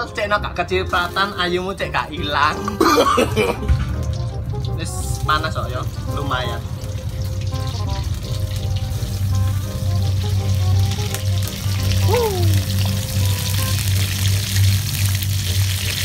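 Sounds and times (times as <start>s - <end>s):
fish frying in sizzling oil: 3.6s - 16.0s.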